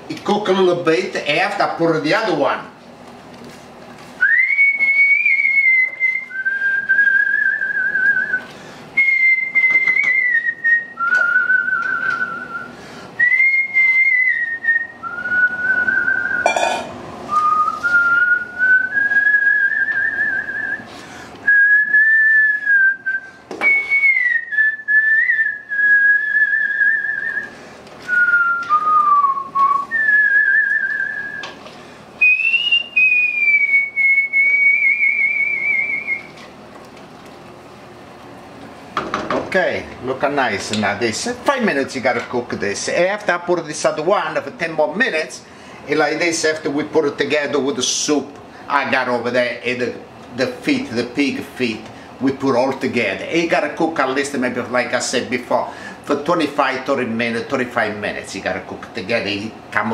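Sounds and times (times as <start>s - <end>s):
person whistling a slow tune: 4.2s - 16.6s, 17.3s - 31.6s, 32.2s - 36.4s.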